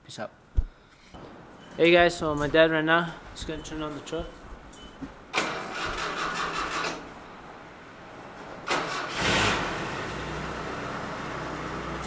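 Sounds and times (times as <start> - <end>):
engine starter cranking: 5.3 - 7.1, 8.6 - 10.4.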